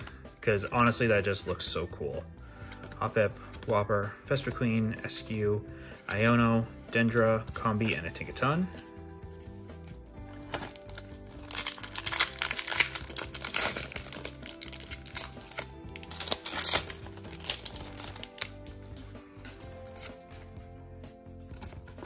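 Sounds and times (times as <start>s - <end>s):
soft background music: 0.0s - 22.0s
foil wrapper crinkling and tearing: 10.3s - 18.6s.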